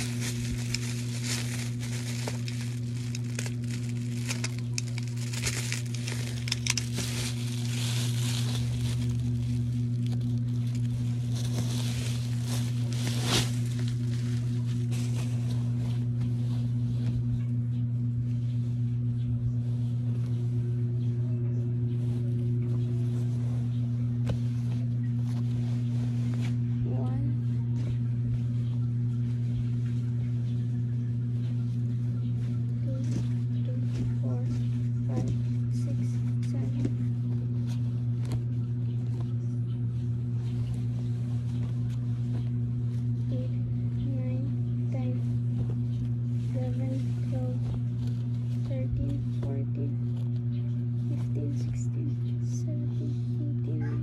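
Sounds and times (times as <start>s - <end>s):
cloth garments rustling: 0.0s - 17.3s, 40.1s - 44.3s, 45.0s - 50.3s
steady low hum: 0.0s - 54.0s.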